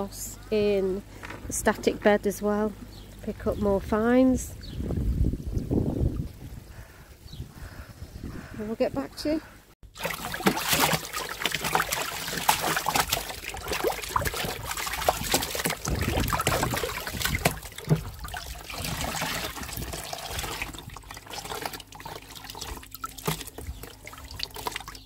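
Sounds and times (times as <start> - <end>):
water splashing and trickling: 4.7 - 6.8, 9.8 - 25.0.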